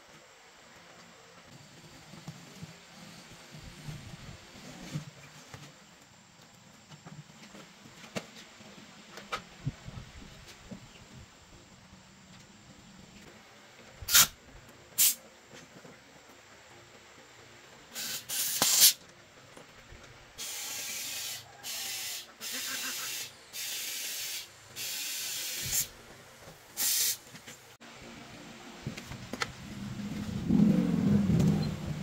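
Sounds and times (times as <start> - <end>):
compressed air hissing: 14.1 - 14.4, 15.0 - 15.2, 17.9 - 19.0, 20.4 - 26.0, 26.7 - 27.3.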